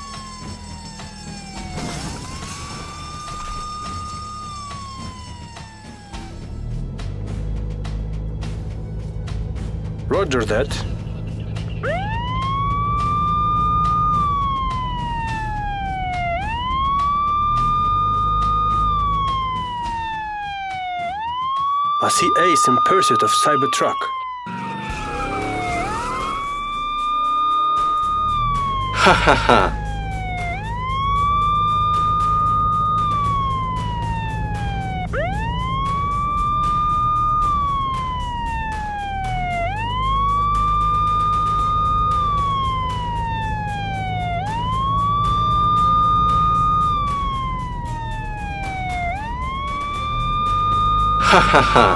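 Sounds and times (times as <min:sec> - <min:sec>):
police siren wailing: 0:00.0 - 0:51.9.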